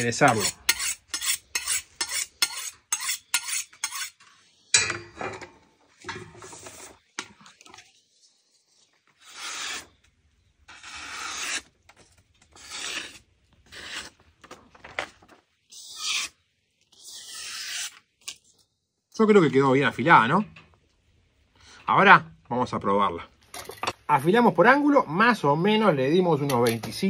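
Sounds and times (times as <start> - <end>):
knife scraping on honing rod: 0.0 - 4.9, 9.2 - 10.0, 10.7 - 11.7, 12.5 - 14.2, 15.7 - 16.4, 17.0 - 18.0
knife slicing paper: 9.2 - 10.0, 10.7 - 11.7, 12.5 - 14.2.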